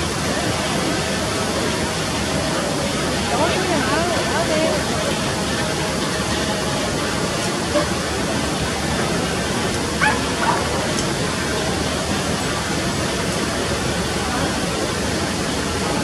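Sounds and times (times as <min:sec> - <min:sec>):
rushing background noise: 0:00.0 - 0:16.0
dog yelping: 0:10.0 - 0:10.6.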